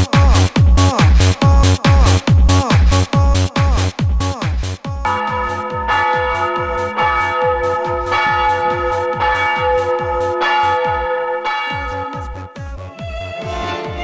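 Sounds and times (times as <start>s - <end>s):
electronic dance music: 0.0s - 14.0s
church bell tones: 5.1s - 12.7s.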